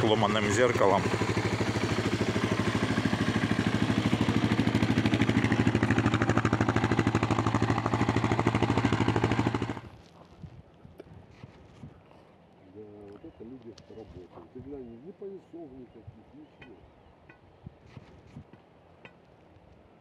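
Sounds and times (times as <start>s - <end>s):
motorcycle engine idling: 0.0s - 9.9s.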